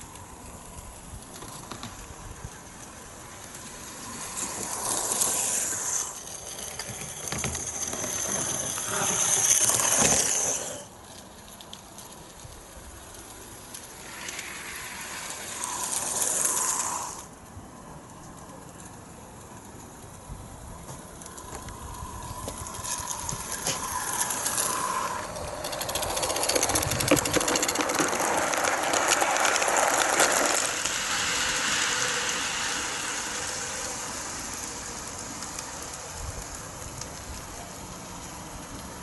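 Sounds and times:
model train passing: 0.0 - 39.0
wheels ticking over track: 0.0 - 39.0.

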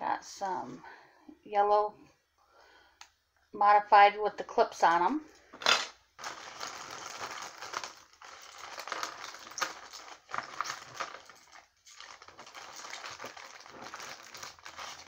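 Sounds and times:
plastic bags rustling: 5.5 - 15.0.

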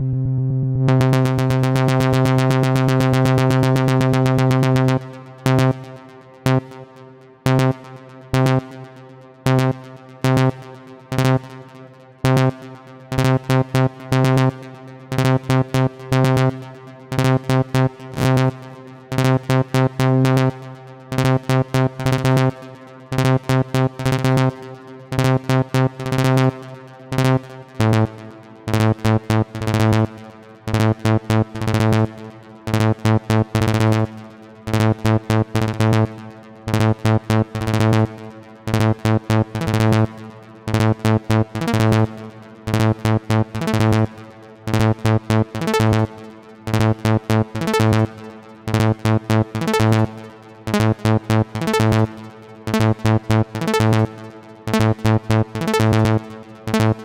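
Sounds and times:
synthesizer saw-wave arpeggio: 30.9 - 57.0.

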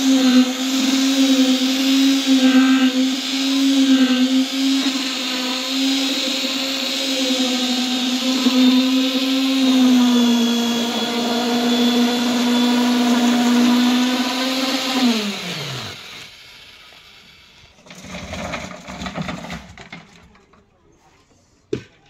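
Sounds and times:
concrete vibrator humming: 0.0 - 16.3
motor spinning down: 0.0 - 17.7.

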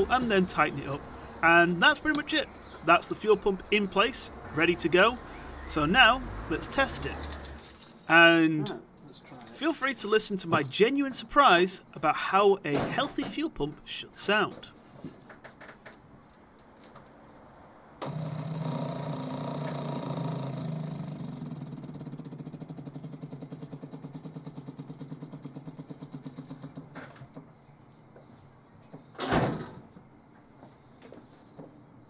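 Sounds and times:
electric fuel pump ticking: 18.0 - 21.5.

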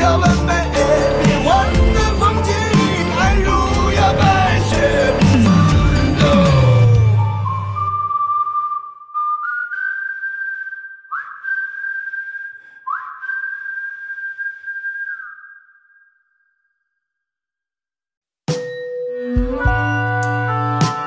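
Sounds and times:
band playing: 0.0 - 7.9
high thin whistle-like tone: 5.3 - 16.9.

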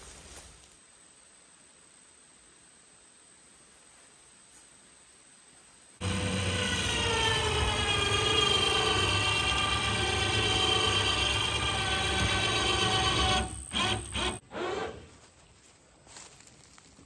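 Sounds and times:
electric winch whining: 6.0 - 15.0.

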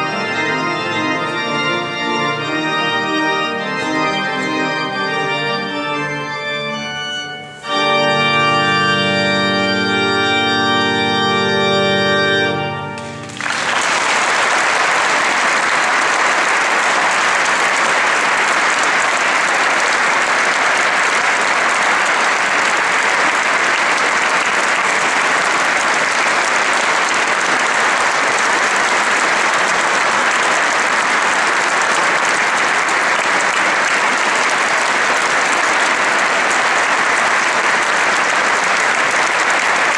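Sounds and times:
pipe organ chords: 0.0 - 14.1
audience applause: 12.9 - 39.9.

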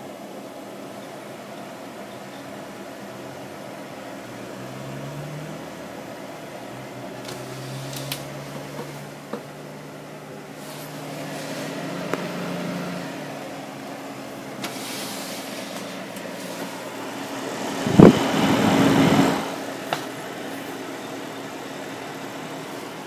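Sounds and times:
computer cooling fans humming: 0.0 - 23.0
rushing noise: 16.4 - 19.8.

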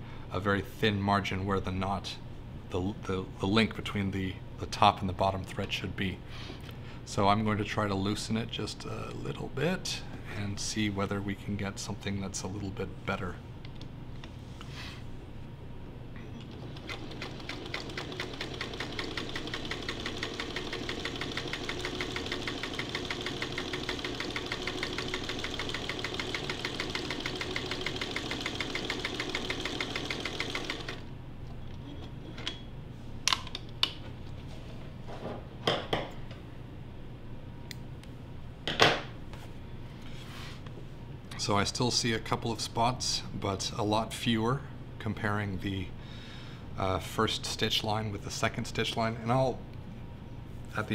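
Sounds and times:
sewing machine motor hum: 16.4 - 31.1
sewing needle ticking: 16.9 - 31.0.

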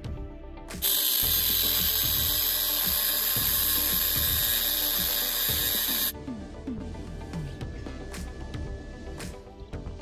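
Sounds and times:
angle grinder cutting metal: 0.8 - 6.1.

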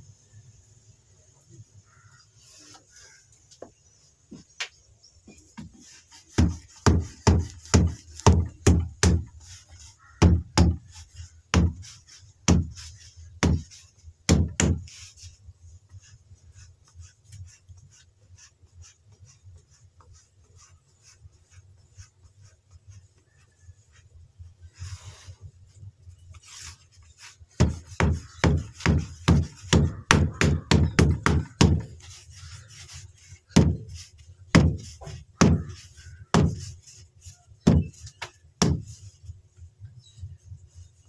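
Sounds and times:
dough patted by hand on board: 3.6 - 15.0, 27.5 - 37.0, 37.6 - 39.0.

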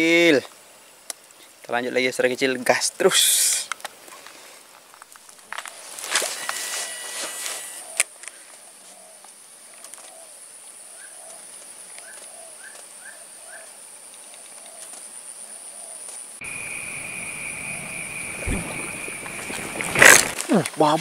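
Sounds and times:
lower insect drone: 4.9 - 21.0
high-pitched insect drone: 5.7 - 8.0, 16.4 - 21.0
fish splash at water surface: 18.2 - 20.5.

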